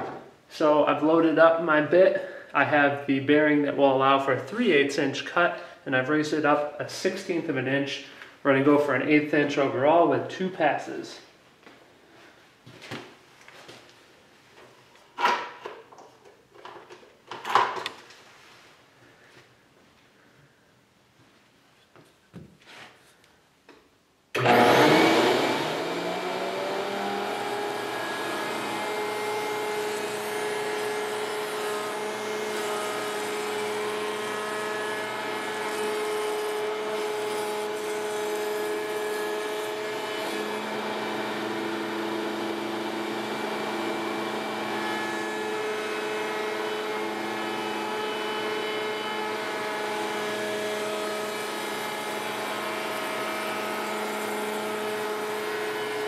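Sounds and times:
router running and cutting wood: 24.4s - 56.0s.

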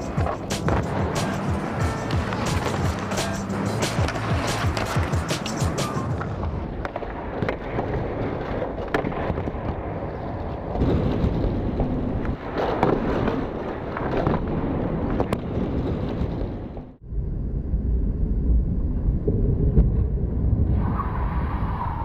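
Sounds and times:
skateboard clacks: 0.0s - 16.8s
skateboard wheels rolling: 0.0s - 17.0s.

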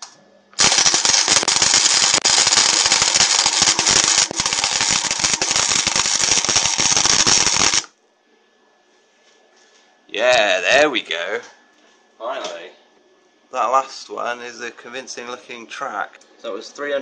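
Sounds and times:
welding arc crackling: 0.0s - 7.9s.

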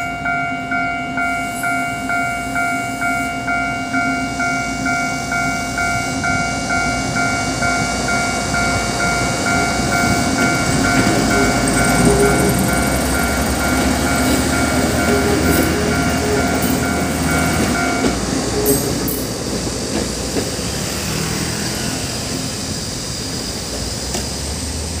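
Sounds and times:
level-crossing warning bell ringing: 0.0s - 19.6s
train rumbling over rails: 0.0s - 25.0s.

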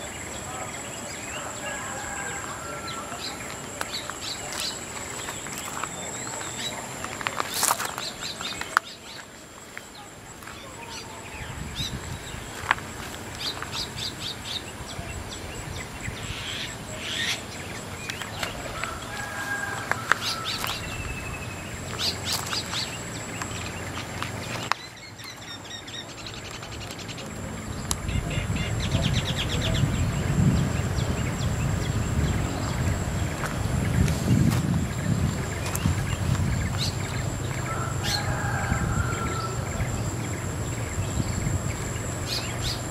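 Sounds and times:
birds chirping and trilling: 0.0s - 42.9s
wind rumble on microphone: 11.2s - 24.7s, 26.6s - 42.9s.

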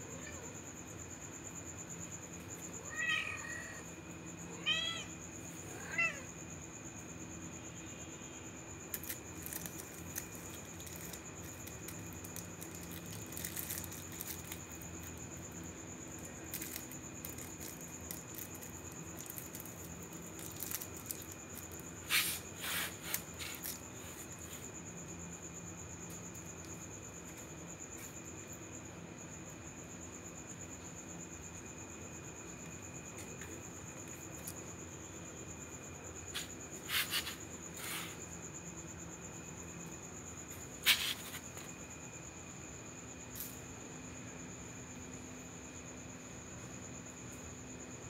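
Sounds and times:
crickets chirring: 0.0s - 48.0s
kittens meowing: 2.8s - 3.8s.

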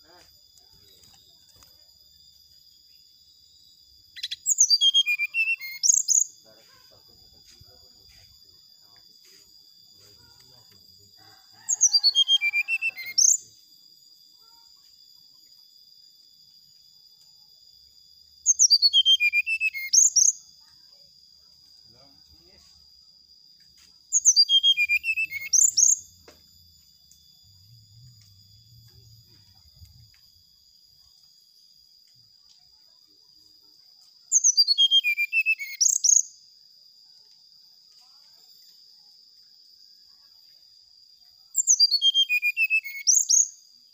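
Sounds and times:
high insect whine: 0.0s - 43.9s
bird whistling song: 4.1s - 6.4s, 11.7s - 13.4s, 18.4s - 20.4s, 24.1s - 26.2s, 34.3s - 36.3s, 41.6s - 43.6s.

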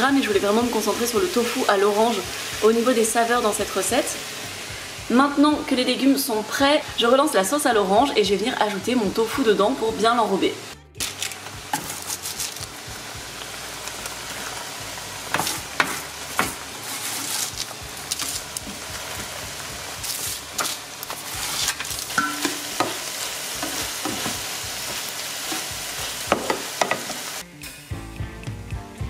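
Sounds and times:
sauce sizzling in a pan: 0.0s - 27.4s
spatula knocking and scraping pan: 21.6s - 25.7s, 26.3s - 27.2s.

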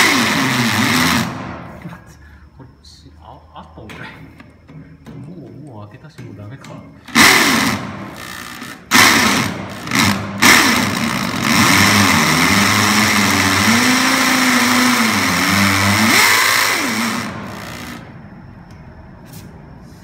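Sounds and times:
hammer drill boring into concrete: 0.0s - 1.4s, 7.1s - 18.1s.

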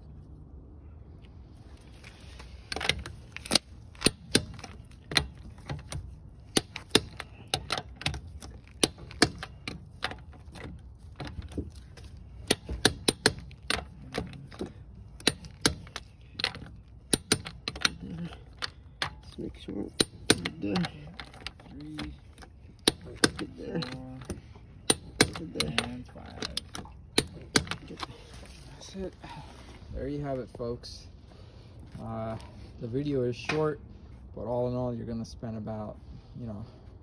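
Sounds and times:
ratchet wrench clicking: 12.5s - 13.9s, 15.2s - 19.2s, 20.0s - 21.6s.

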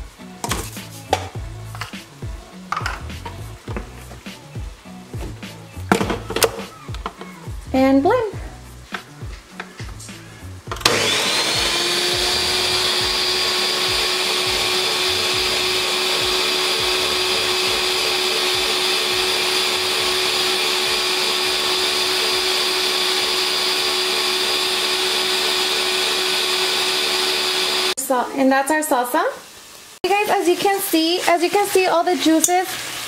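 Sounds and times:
blender motor whining: 10.7s - 28.0s.

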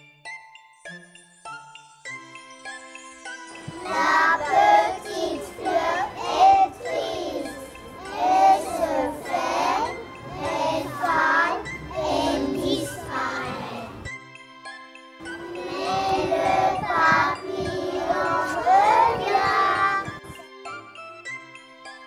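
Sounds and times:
light tinkling background music: 0.0s - 22.0s
children chanting in unison: 3.7s - 14.0s, 15.3s - 20.4s.

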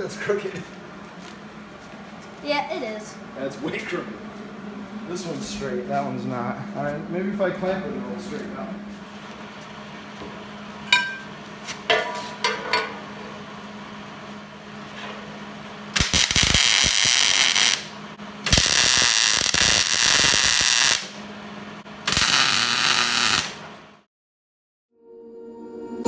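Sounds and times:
arc welding crackling sizzle: 15.9s - 21.2s, 22.0s - 23.7s.

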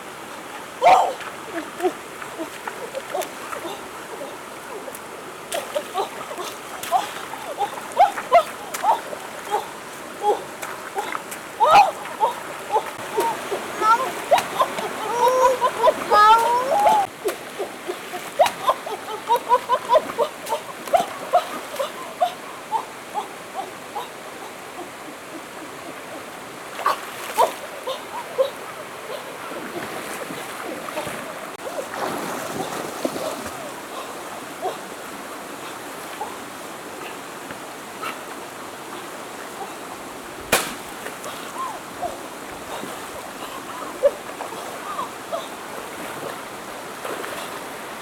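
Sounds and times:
small water splashes: 0.0s - 24.9s, 26.5s - 48.0s
flowing river water: 0.0s - 48.0s
sharp knock: 40.5s - 40.8s.

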